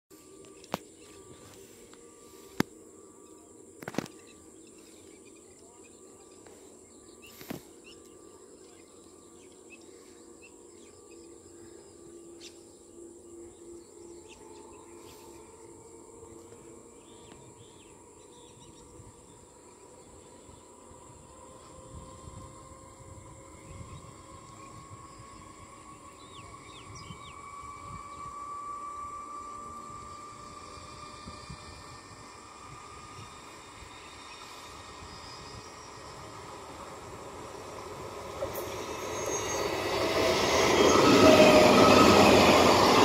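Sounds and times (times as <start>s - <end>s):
high-pitched insect drone: 0.2s - 43.0s.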